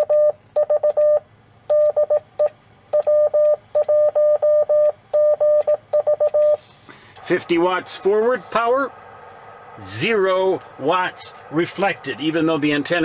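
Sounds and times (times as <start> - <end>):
morse code tone keyed on and off: 0.0 - 6.6.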